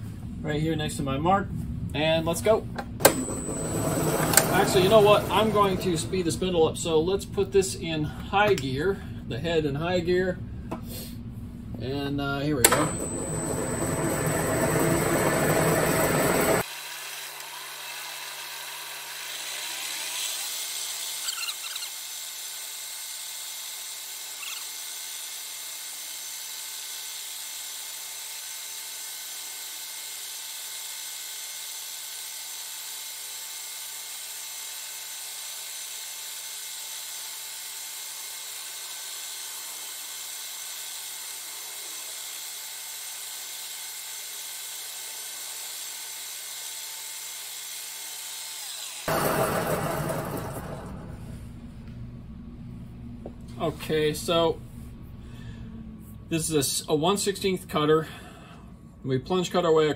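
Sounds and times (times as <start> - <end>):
cutter squealing: 3.0 - 6.3, 12.6 - 16.7, 17.3 - 22.1, 24.3 - 24.9, 48.6 - 51.1
milling machine spindle whine: 3.0 - 6.5, 12.6 - 20.4, 48.6 - 51.3.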